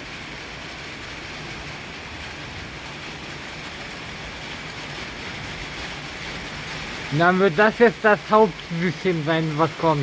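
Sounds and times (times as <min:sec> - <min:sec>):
steady rain: 0:00.0 - 0:10.0.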